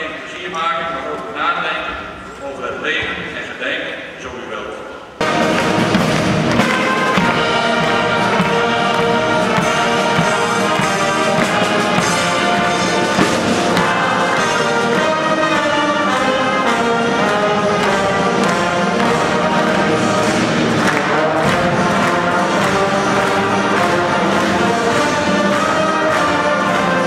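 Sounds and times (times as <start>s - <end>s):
bass drum: 5.2s - 16.3s, 17.1s - 27.0s
brass band playing: 5.2s - 27.0s.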